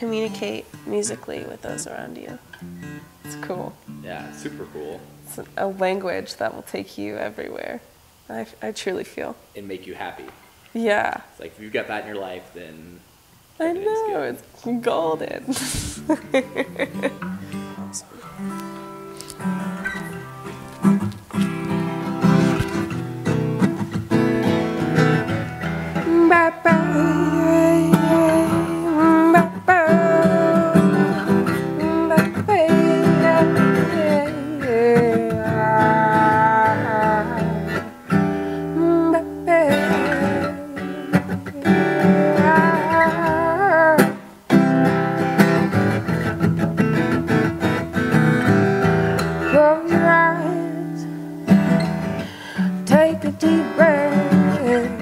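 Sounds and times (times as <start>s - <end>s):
woman singing: 0.0s - 2.4s, 26.0s - 37.9s, 38.7s - 44.3s, 49.4s - 51.3s, 52.7s - 55.0s
acoustic guitar playing: 0.0s - 10.3s, 13.0s - 55.0s.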